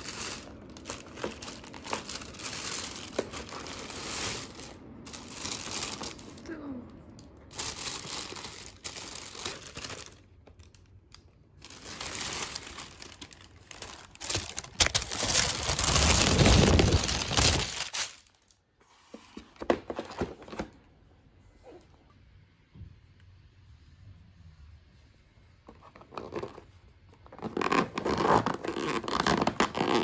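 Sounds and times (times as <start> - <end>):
plastic bag rustling: 0.0 - 18.6.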